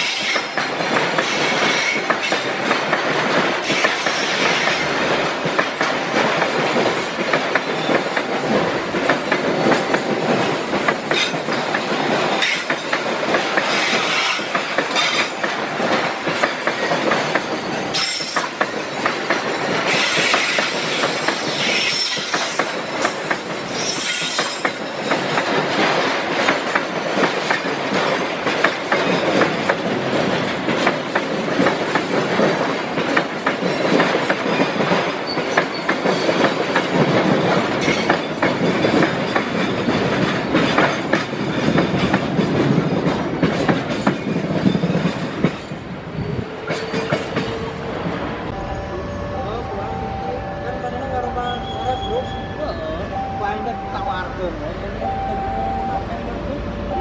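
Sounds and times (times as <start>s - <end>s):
wheels clacking over rail joints: 0.0s - 45.8s, 46.4s - 47.8s
freight train rolling rumble: 0.0s - 57.0s
high-pitched wheel squeals: 21.2s - 25.1s, 48.6s - 54.3s.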